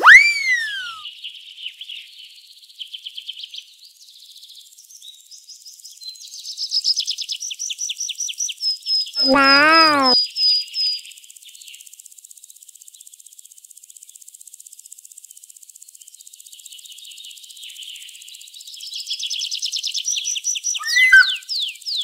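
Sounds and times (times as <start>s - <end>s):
bird chirping and whistling: 0.0s - 1.0s, 20.8s - 21.4s.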